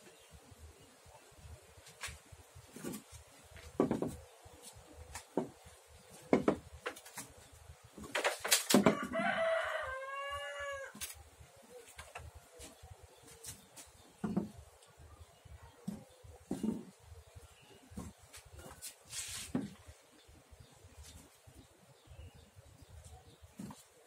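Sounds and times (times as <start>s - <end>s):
rooster crowing: 8.9s - 11.0s.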